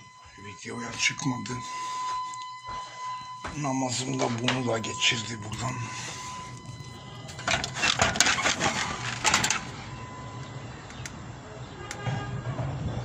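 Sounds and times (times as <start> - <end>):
low steady hum: 0.0 - 12.0
clicks and rattles: 6.6 - 9.8.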